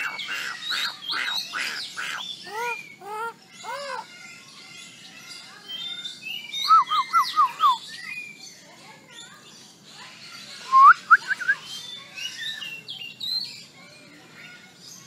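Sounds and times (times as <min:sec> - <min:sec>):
myna whistling and chirping: 0:06.4 - 0:08.1, 0:10.6 - 0:11.6.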